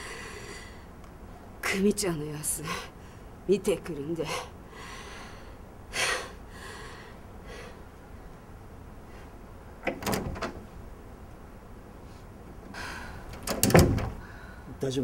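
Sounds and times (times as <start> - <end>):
door handle and latch clunk: 9.8 - 10.7, 13.3 - 14.2.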